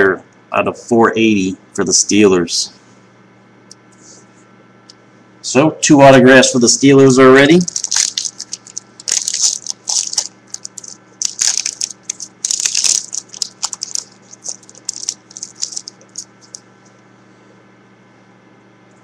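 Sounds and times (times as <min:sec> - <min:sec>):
foil wrapper crinkling: 0:07.6 - 0:16.6.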